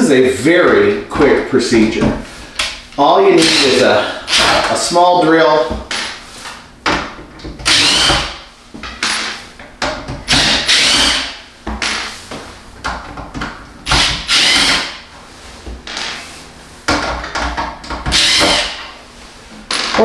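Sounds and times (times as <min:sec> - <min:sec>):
handheld drill whirring: 0:03.4 - 0:04.6, 0:07.6 - 0:08.4, 0:10.3 - 0:11.4, 0:13.8 - 0:15.0, 0:18.1 - 0:18.9.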